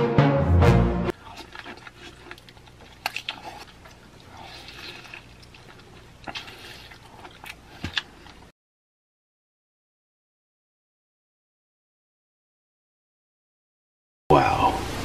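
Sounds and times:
music: 0.0s - 1.1s
wet biting and chewing: 1.1s - 8.5s.

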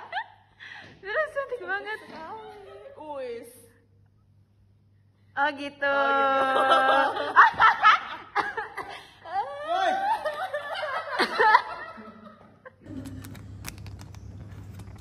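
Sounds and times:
steady low hum: 0.0s - 15.0s
people laughing and giggling: 1.8s - 3.1s, 6.4s - 13.1s.

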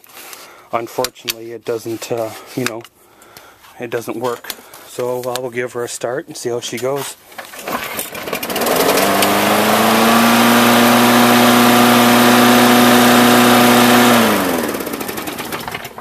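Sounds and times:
lawn mower engine running: 7.6s - 16.0s.

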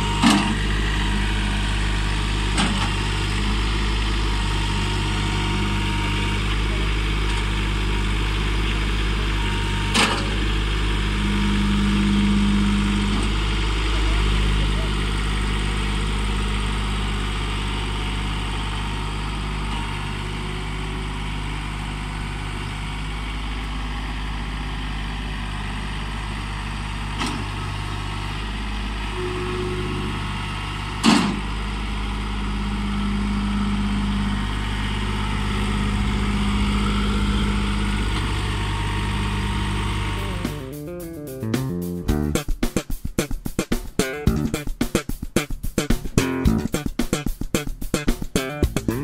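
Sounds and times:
tractor diesel engine running: 0.0s - 44.8s, 45.4s - 49.0s.

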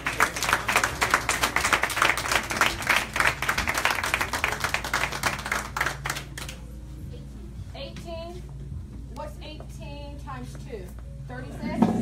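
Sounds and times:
people clapping: 0.0s - 6.7s.

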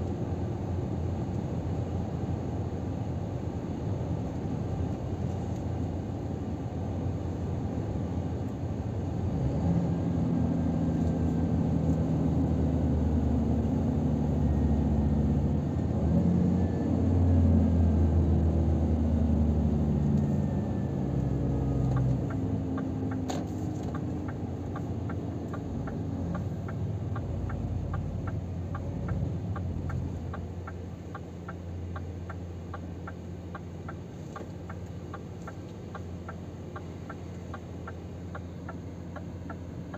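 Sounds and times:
road noise: 0.0s - 39.9s
truck diesel engine: 0.0s - 39.9s
turn indicator ticking: 21.8s - 39.9s.

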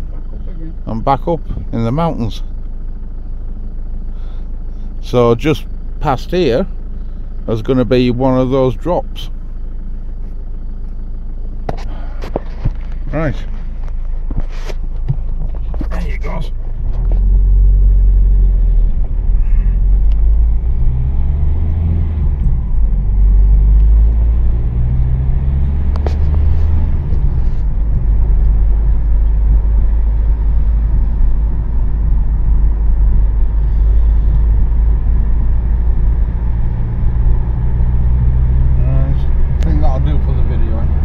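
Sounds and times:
engine and tyre rumble: 0.0s - 41.0s.

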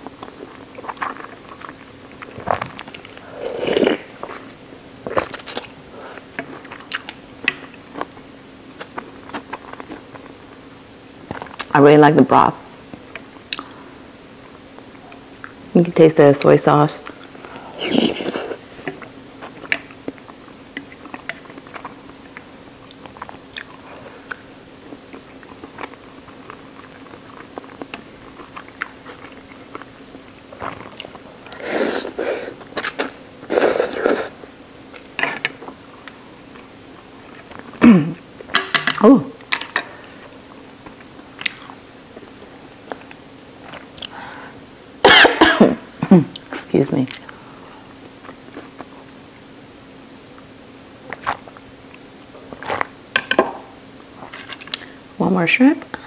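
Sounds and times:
person chewing: 0.0s - 10.3s, 17.0s - 37.8s, 40.2s - 41.8s, 42.8s - 44.2s
noodle slurps: 30.6s - 34.4s.

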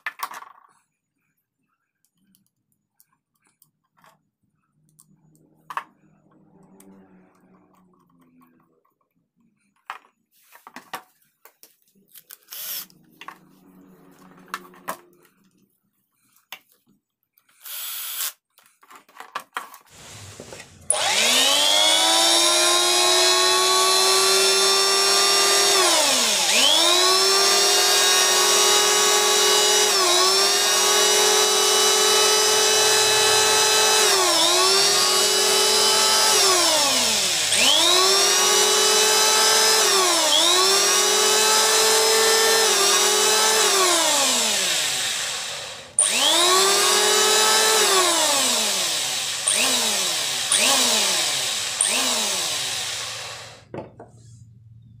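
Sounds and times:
electric hand planer whining: 19.9s - 53.7s.

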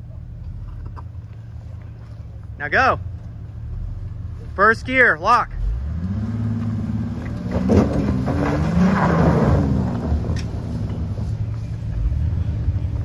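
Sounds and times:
car engine revving hard: 5.6s - 11.3s
tyres scrabbling on dirt: 6.6s - 13.0s.

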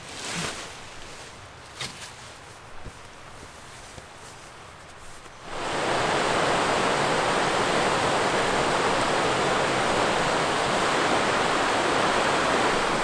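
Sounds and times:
river rapids rushing over rocks: 5.4s - 13.0s.

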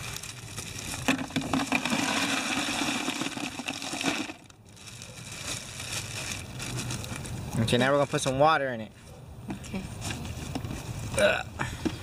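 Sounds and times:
ice cubes clattering into tub: 1.0s - 4.5s.

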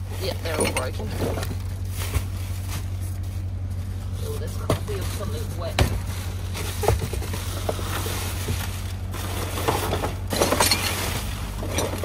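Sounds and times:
knocks and rustling in dumpster: 0.0s - 12.0s
clattering: 0.2s - 1.7s, 4.6s - 12.0s.

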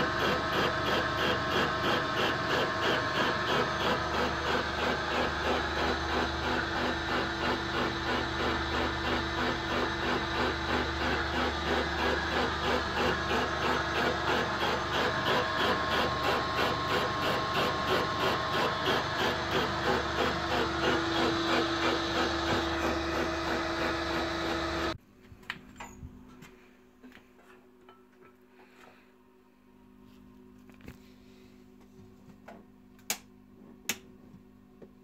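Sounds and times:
milling machine humming: 0.0s - 25.0s.

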